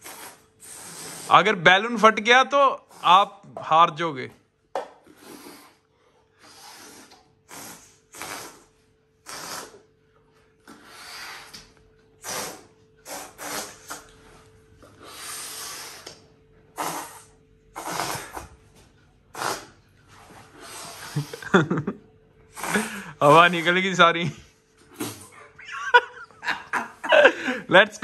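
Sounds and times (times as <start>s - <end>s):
person blowing hard puffs: 0.0s - 1.4s, 5.0s - 10.0s, 10.6s - 14.4s, 15.0s - 18.7s, 19.3s - 21.8s, 22.5s - 23.8s, 24.8s - 25.4s
faint steady hum: 0.0s - 28.0s.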